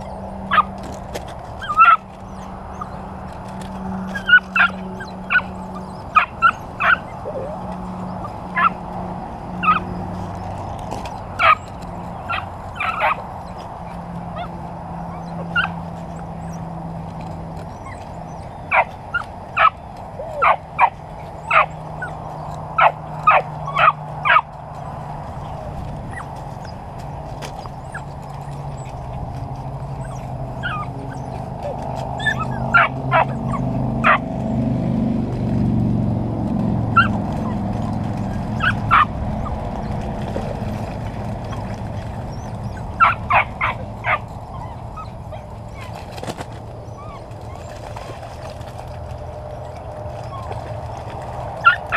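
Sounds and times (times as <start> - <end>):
puppies yipping and barking: 0.0 - 51.9.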